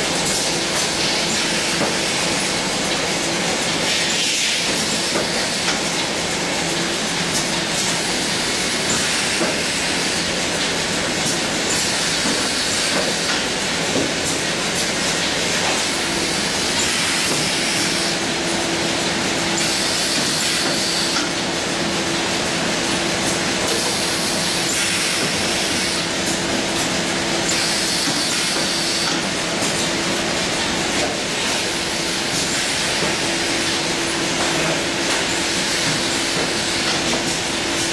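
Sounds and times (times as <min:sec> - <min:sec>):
machine clattering and clicking: 0:00.1 - 0:37.9
machine hissing: 0:19.4 - 0:21.2, 0:23.6 - 0:26.5, 0:27.4 - 0:37.9.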